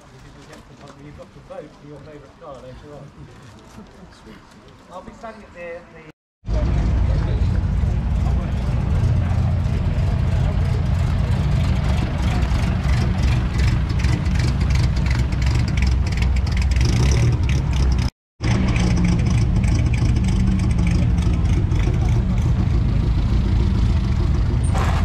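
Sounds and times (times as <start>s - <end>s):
cars moving over gravel: 0.0s - 5.2s, 6.5s - 25.0s
car engines idling: 6.5s - 25.0s.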